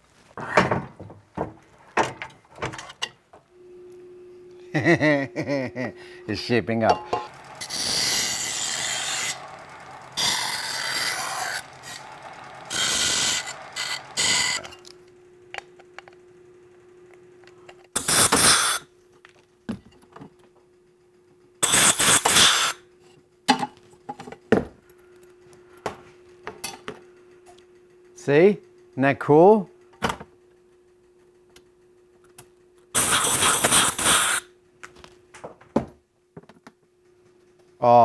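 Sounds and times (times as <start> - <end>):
faint hum: 1.6 - 35.6
harsh tool noise bursts: 4.8 - 14.9, 18.0 - 18.9, 21.6 - 22.8, 33.0 - 34.5.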